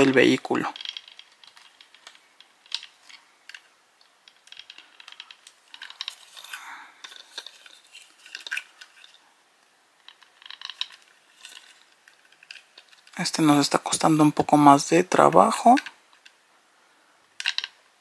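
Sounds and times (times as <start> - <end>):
plastic parts clicking and tapping: 0.0 - 9.2, 10.0 - 13.2, 15.6 - 16.4, 17.3 - 17.8
plastic scraping rub: 4.4 - 9.2.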